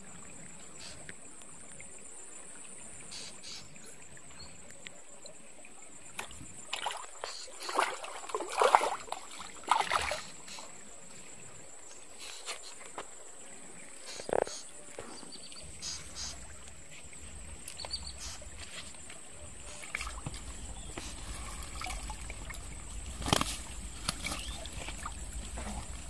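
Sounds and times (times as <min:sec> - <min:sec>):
fish splashing in water: 0:06.1 - 0:10.8, 0:15.7 - 0:26.0.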